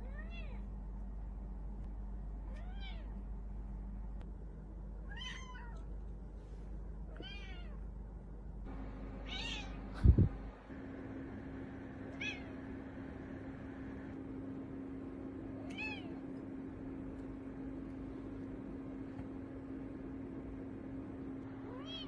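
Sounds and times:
cat meowing: 5.1s - 5.9s, 7.1s - 7.8s, 9.2s - 9.8s, 12.2s - 12.6s, 21.6s - 22.0s.

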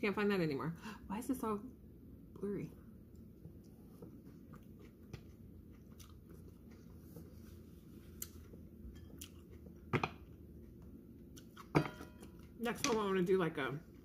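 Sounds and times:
woman chewing food: 3.0s - 12.6s.

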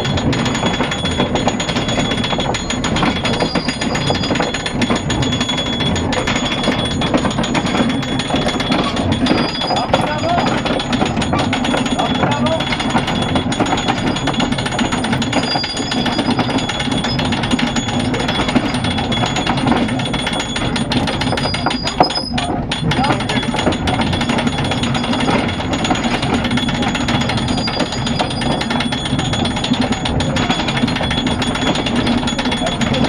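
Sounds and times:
rapid mechanical rattling: 0.0s - 33.0s
voices: 8.4s - 12.8s.

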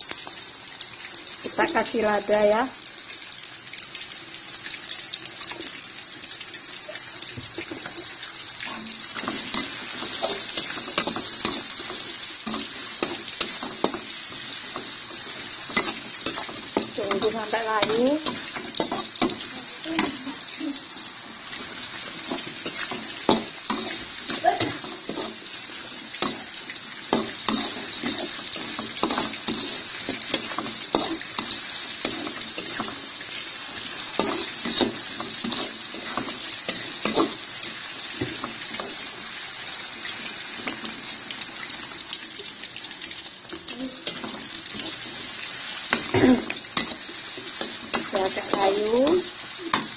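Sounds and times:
vegetables sizzling in a wok: 0.0s - 49.9s
spatula scraping and knocking pan: 8.6s - 20.3s, 21.5s - 39.1s, 44.0s - 49.9s.

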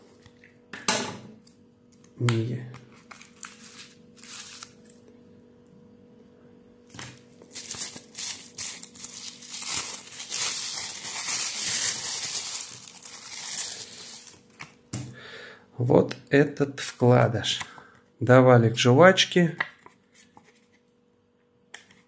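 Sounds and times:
plastic packaging crinkling: 2.9s - 5.0s, 6.9s - 14.6s.

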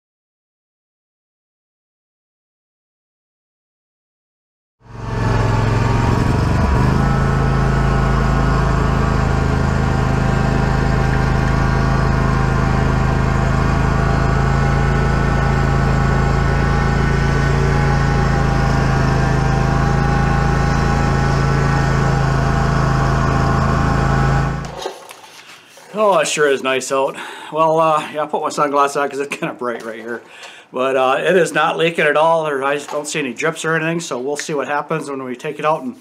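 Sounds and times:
mower engine running: 4.8s - 25.4s.

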